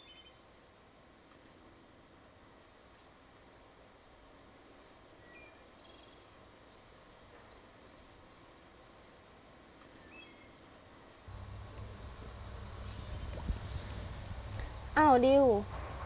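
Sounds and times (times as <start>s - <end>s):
low steady hum: 11.1s - 16.0s.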